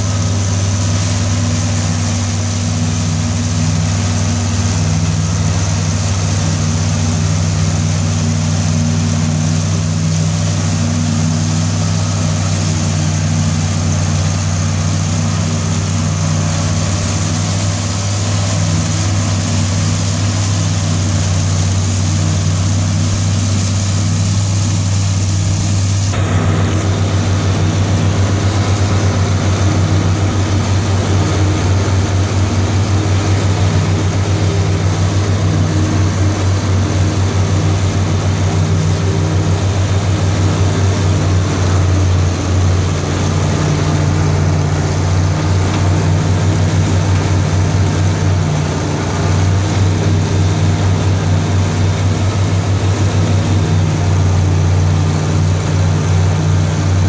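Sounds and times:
forage harvester chopping corn: 0.0 - 57.0
tractor engine under load: 0.0 - 57.0.

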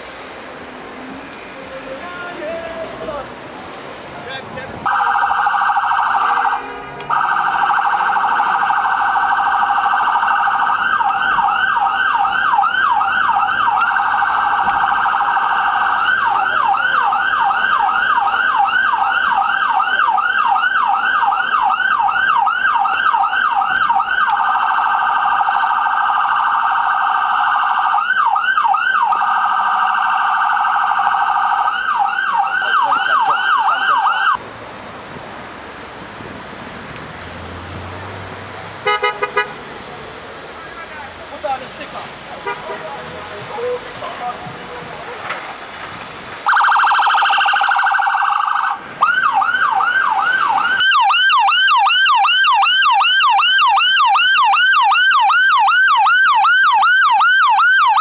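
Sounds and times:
emergency vehicle siren wailing: 4.7 - 34.4, 46.4 - 58.0.

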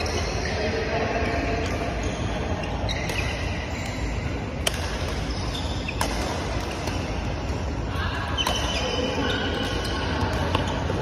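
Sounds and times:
rackets hitting shuttlecocks: 3.0 - 7.7.

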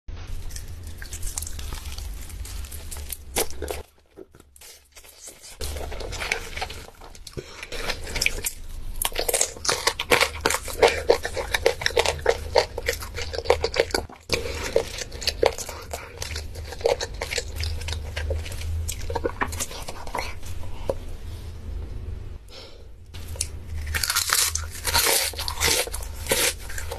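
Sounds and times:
crunchy chewing of fried chicken: 0.2 - 21.0, 23.2 - 26.9.

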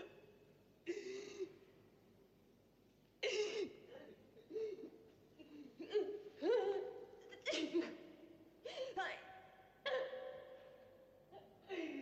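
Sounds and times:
woman sobbing: 3.6 - 9.0, 11.4 - 12.0.

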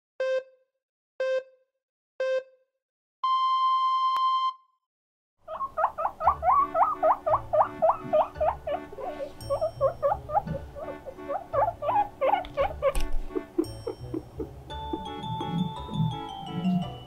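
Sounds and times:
countdown beeps: 0.2 - 0.5, 3.2 - 4.6, 14.8 - 16.9
guinea pig squeaks: 5.5 - 16.8.

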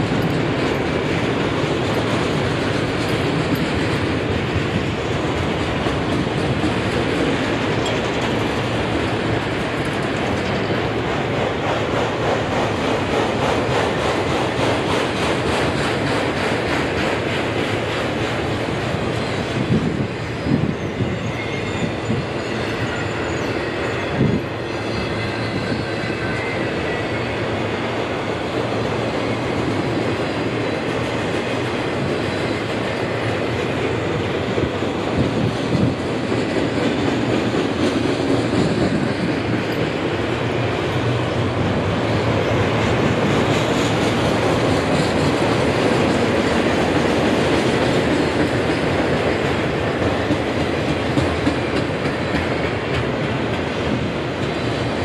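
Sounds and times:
train wheels rumbling on rail: 0.0 - 55.0
faint wheel squeal: 20.4 - 27.4.

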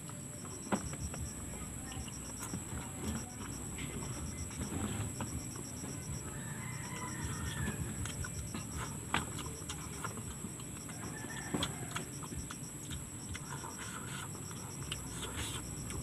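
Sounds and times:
high-pitched pulsing trill: 0.2 - 16.0
rooster crowing: 6.2 - 8.7, 10.8 - 12.4.

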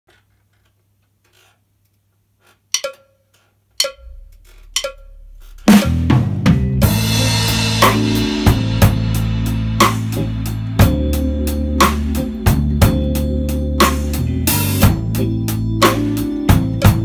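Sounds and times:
drum kit playing blues groove: 2.8 - 3.0, 3.8 - 17.0
count-in clicks: 2.8 - 3.2, 3.8 - 6.0
backing track with bass: 3.8 - 17.0.

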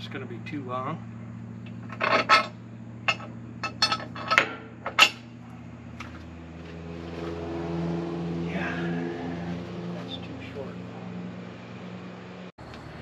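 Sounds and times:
steady low hum: 0.0 - 13.0
metal tools clinking: 1.8 - 5.2
high drone: 6.5 - 12.5.

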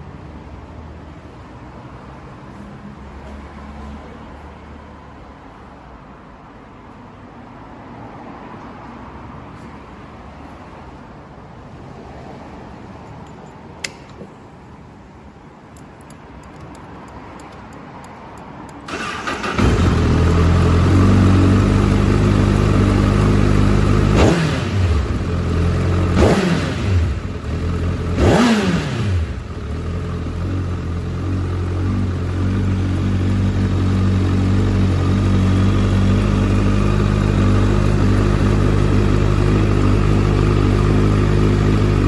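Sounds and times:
short click: 13.8 - 14.3
motorcycle engine starting and idling: 15.7 - 42.0
motorcycle engine revving: 18.9 - 42.0.

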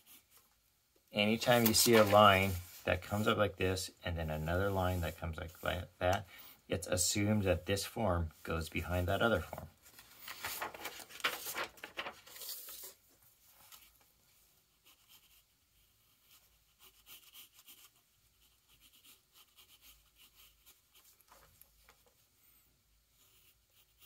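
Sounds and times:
pencil scratching on paper: 0.0 - 0.4, 14.7 - 21.4, 23.1 - 24.0.

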